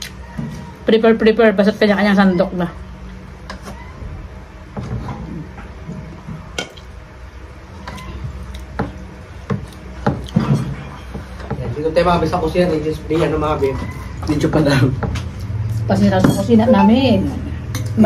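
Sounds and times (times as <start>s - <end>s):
plates and utensils clinking: 8.8s - 11.8s, 16.0s - 18.0s.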